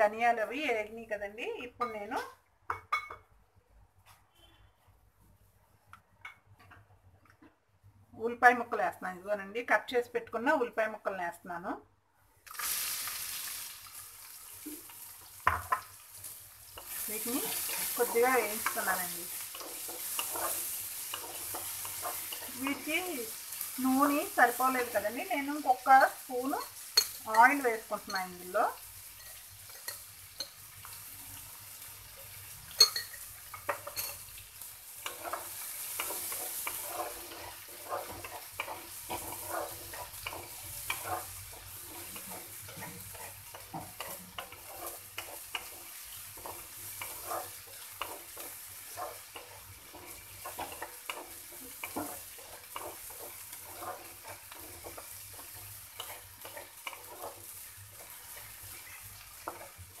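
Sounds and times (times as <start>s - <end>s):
onions sizzling in oil: 12.4s - 60.0s
wooden spatula scraping pan: 16.8s - 23.1s, 35.0s - 60.0s.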